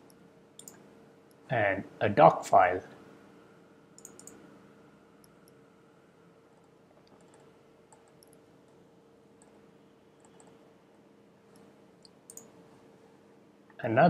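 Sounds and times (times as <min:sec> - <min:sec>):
computer mouse clicks: 0:00.0 - 0:00.8, 0:04.0 - 0:04.5, 0:06.5 - 0:08.8, 0:09.4 - 0:09.6, 0:10.2 - 0:10.6, 0:11.5 - 0:12.6
faint room hum: 0:00.0 - 0:14.0.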